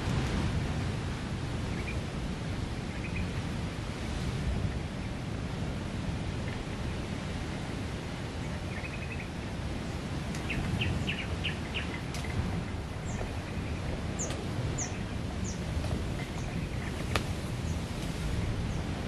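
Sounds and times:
wind: 0:00.0 - 0:19.0
small birds chirping: 0:08.4 - 0:09.6, 0:10.3 - 0:18.9.

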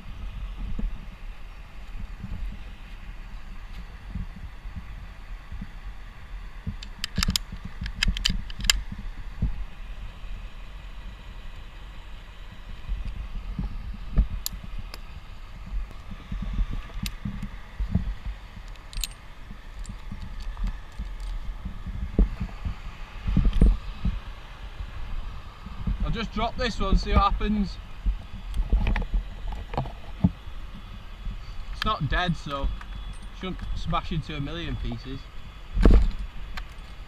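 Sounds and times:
steady low rumble: 0:00.0 - 0:37.0
metal karabiners clinking: 0:18.6 - 0:21.4, 0:33.1 - 0:33.8.

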